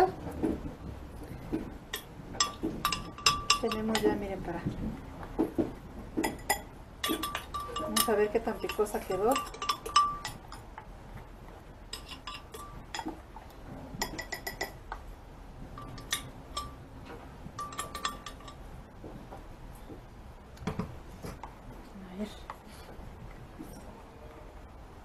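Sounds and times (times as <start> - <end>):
metal spoon scraping glass jar: 6.3 - 10.6, 11.9 - 13.1.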